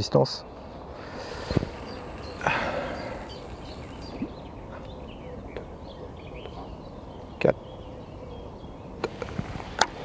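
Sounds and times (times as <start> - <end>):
birds chirping: 0.0 - 10.0
steady background hiss: 0.0 - 10.0.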